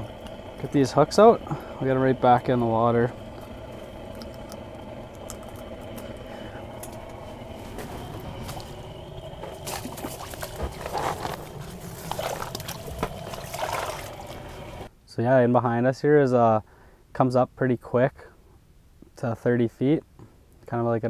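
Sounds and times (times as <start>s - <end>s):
water splashing: 0.0s - 14.9s.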